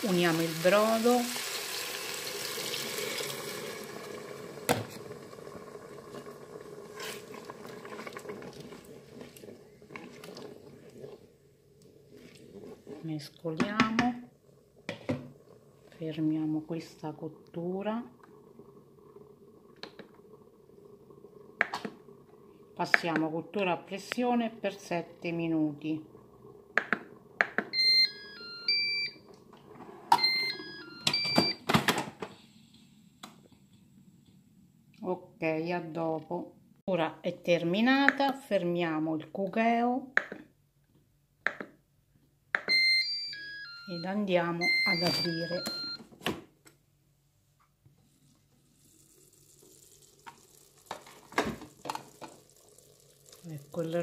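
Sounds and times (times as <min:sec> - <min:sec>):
broth sizzling in hot pot: 0:00.0 - 0:13.0, 0:48.0 - 0:54.0
liquid sloshing: 0:04.6 - 0:13.1
wooden spoon stirring and scraping: 0:06.1 - 0:13.5
electronic beep melody: 0:27.7 - 0:29.2, 0:30.2 - 0:31.6, 0:42.7 - 0:46.0
held electronic beep: 0:27.7 - 0:29.2, 0:30.1 - 0:31.6, 0:42.7 - 0:46.0.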